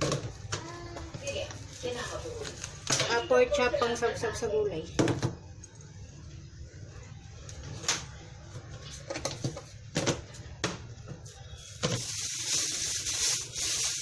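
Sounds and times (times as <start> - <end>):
groceries crinkling: 0.5 - 3.2, 11.6 - 14.0.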